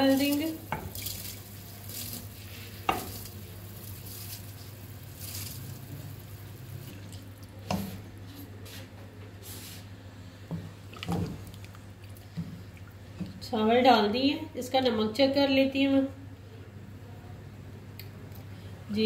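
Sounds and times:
stock simmering: 0.0s - 8.0s, 10.8s - 13.4s.

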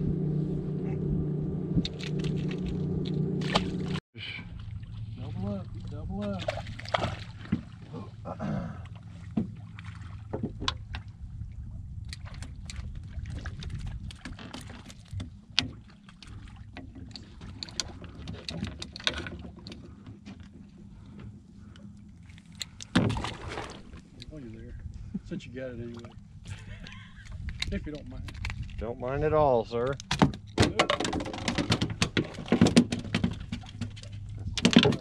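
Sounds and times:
boat engine low hum: 0.0s - 35.0s
clicks and knocks of gear: 27.4s - 28.8s, 29.8s - 35.0s.

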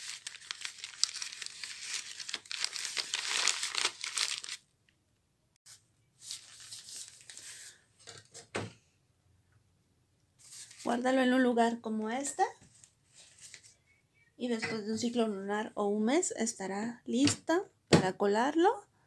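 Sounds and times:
paper bag crinkling: 0.0s - 4.6s, 6.2s - 7.8s.

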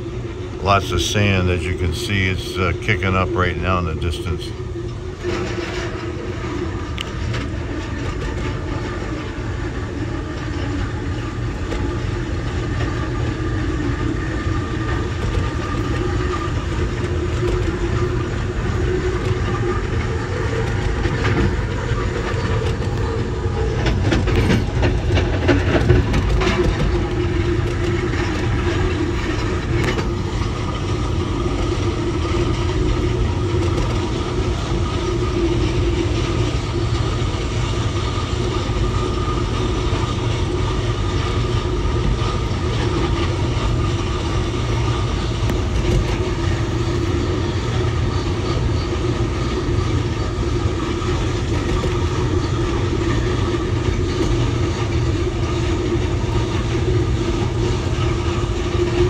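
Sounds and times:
train wheel and rail rumble: 0.0s - 59.0s
wheels clacking over track joints: 14.2s - 59.0s.

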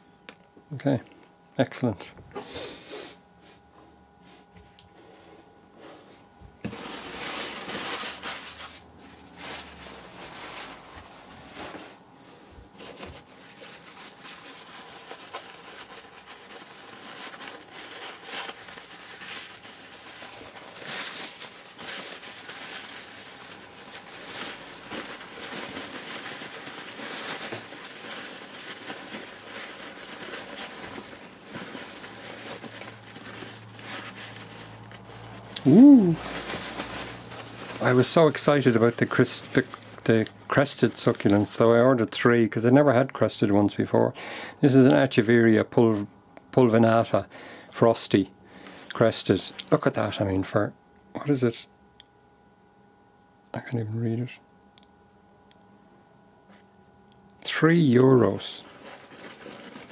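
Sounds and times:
paper wrap rustling and crinkling: 6.5s - 43.6s, 48.0s - 50.2s, 57.5s - 59.9s.

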